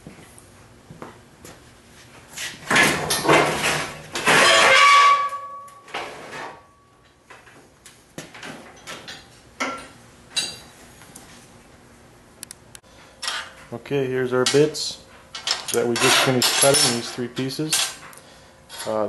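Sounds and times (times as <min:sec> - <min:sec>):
metal sheet scraping clatter: 0:02.7 - 0:05.4.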